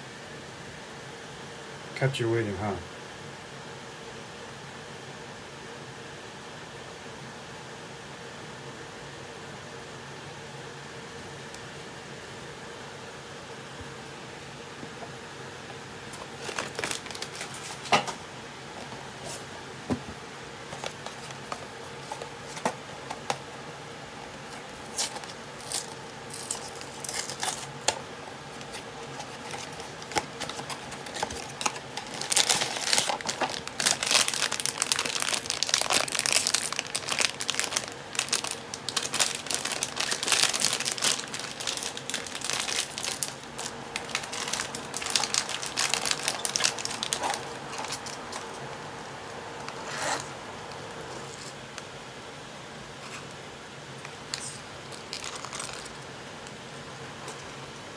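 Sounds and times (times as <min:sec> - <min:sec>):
foil wrapper crinkling and tearing: 0:16.1 - 0:18.1, 0:24.5 - 0:48.7, 0:54.3 - 0:56.0.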